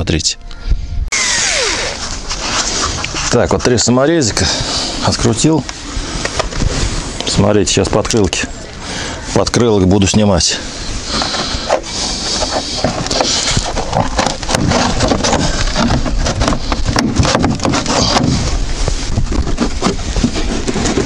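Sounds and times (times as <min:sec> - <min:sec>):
plastic liner scraping and rubbing: 0:01.2 - 0:04.9, 0:11.0 - 0:21.0.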